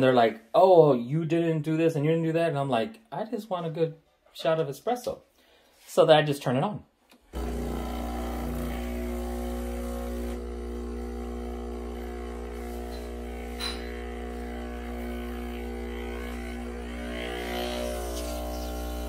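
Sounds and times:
espresso machine pump buzzing: 0:07.3 - 0:19.0.

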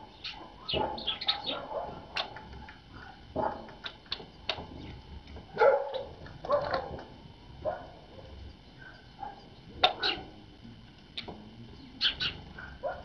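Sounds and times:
high bird calls: 0:00.1 - 0:02.4, 0:08.7 - 0:10.3, 0:11.2 - 0:12.5
dog barking: 0:00.3 - 0:02.1, 0:03.0 - 0:03.7, 0:05.6 - 0:07.0, 0:07.6 - 0:09.4, 0:12.6 - 0:13.0.

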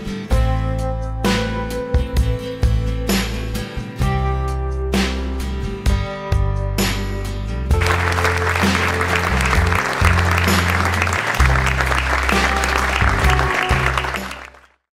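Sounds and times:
background music with bass line: 0:00.0 - 0:14.6
audience applauding: 0:07.8 - 0:14.8.

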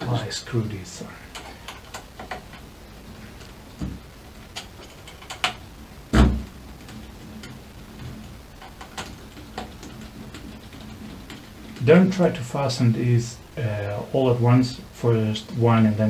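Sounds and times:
loud knock: 0:06.1 - 0:06.5.

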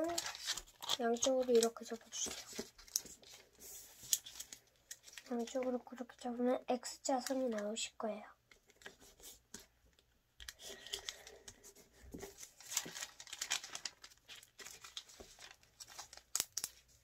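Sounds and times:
paper rustling as it is folded: 0:00.0 - 0:06.3, 0:08.6 - 0:17.0.

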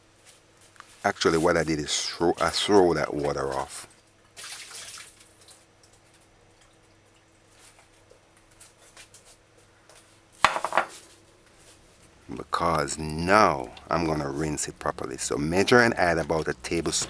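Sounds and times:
faint steady hum: 0:00.0 - 0:17.0
ceramic plate clattering on countertop: 0:10.4 - 0:11.0.

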